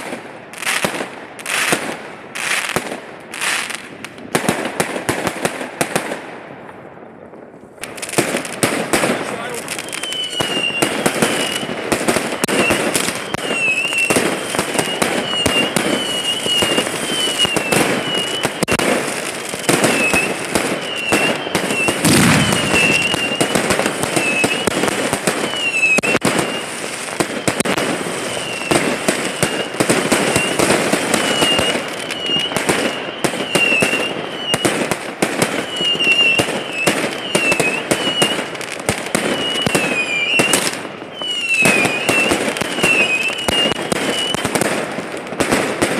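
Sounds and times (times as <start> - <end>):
fireworks popping and crackling: 0.0 - 45.9
falling whistle: 9.7 - 11.8, 12.4 - 18.8, 19.8 - 24.8, 25.4 - 27.7, 28.3 - 34.8, 35.5 - 38.4, 39.0 - 44.4.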